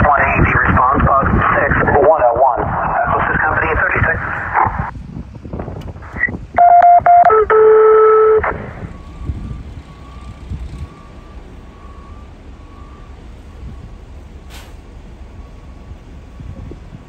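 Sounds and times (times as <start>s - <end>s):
short loud beeps: 6.1s - 9.3s
faint repeating beep: 6.1s - 10.3s
long low steady tone: 6.1s - 17.0s.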